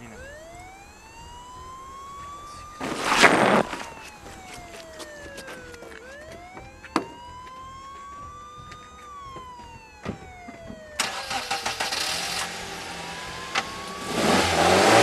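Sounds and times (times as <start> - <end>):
siren wailing: 0.0 - 15.0
car engine starting and running: 8.6 - 15.0.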